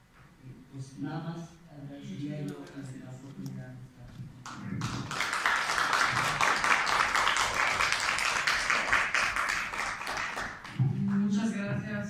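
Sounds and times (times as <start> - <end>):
audience applauding: 4.4 - 10.8.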